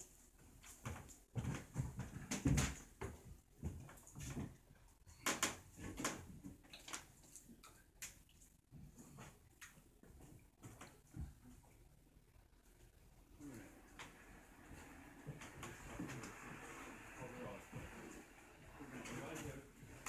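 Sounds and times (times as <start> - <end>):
shuffling footsteps: 0.0 - 4.8.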